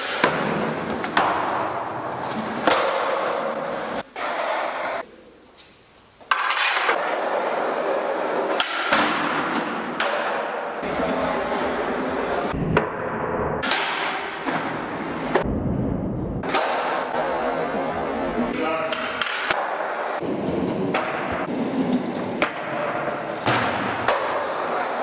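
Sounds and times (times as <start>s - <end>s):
skateboard wheels rolling on concrete: 0.0s - 5.1s, 6.2s - 12.6s, 19.2s - 25.0s.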